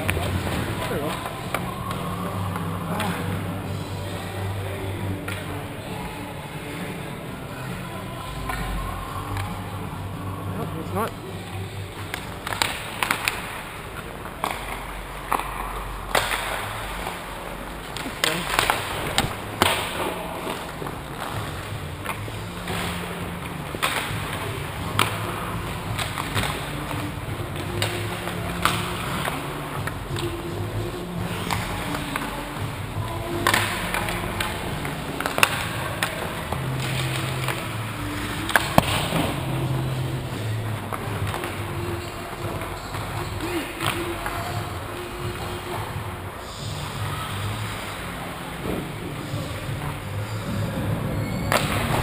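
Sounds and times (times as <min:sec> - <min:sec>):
hockey sticks and puck cracking: 0:00.0 - 0:52.0
skate blades scraping on ice: 0:11.6 - 0:45.6.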